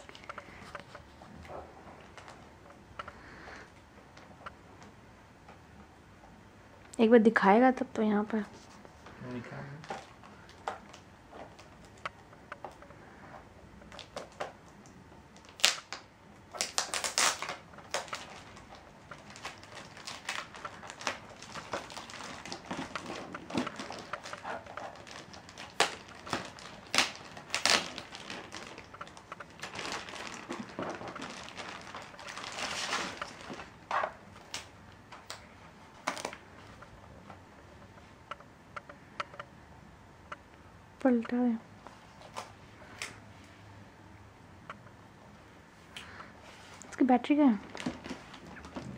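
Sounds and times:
plastic bag crinkling: 0:15.4 - 0:36.9, 0:47.5 - 0:48.9.

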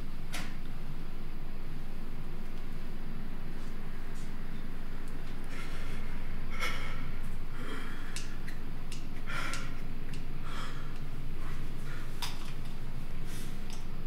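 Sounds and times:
steady low hum: 0:00.0 - 0:14.0
person breathing heavily: 0:05.4 - 0:08.6, 0:09.2 - 0:12.4.

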